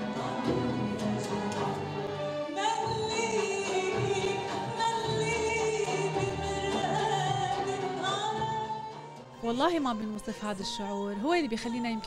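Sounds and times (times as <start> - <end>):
orchestral accompaniment with strings: 0.0 - 12.0
woman singing into a microphone: 2.6 - 12.0.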